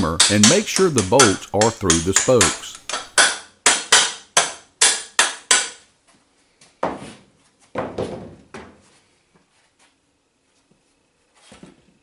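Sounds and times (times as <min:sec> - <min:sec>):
hammer striking bolts into wood: 0:00.2 - 0:05.8.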